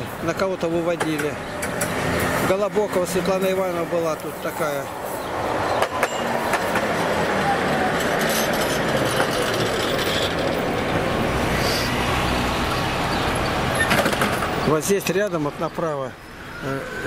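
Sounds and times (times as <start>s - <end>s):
tram wheels rumbling on rails: 0.9s - 14.7s.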